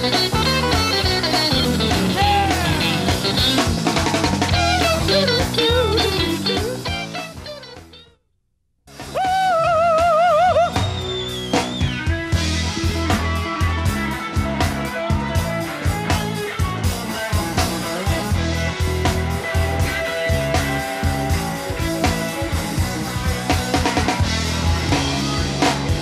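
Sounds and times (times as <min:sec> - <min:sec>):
lead guitar bending lines: 0:00.0 - 0:08.1
live rock band: 0:00.0 - 0:08.1, 0:08.9 - 0:26.0.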